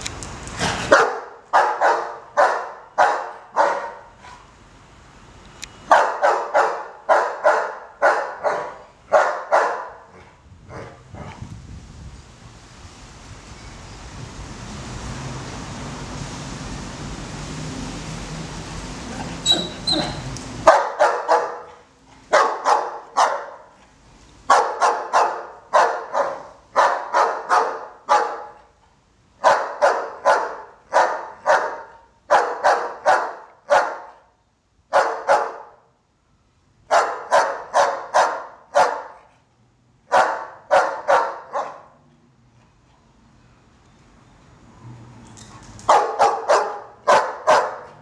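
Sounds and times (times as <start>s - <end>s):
dog barking: 0.9s - 4.2s, 5.9s - 10.1s, 19.5s - 23.8s, 24.5s - 28.7s, 29.4s - 34.3s, 34.9s - 35.8s, 36.9s - 39.3s, 40.1s - 42.0s, 45.9s - 48.0s.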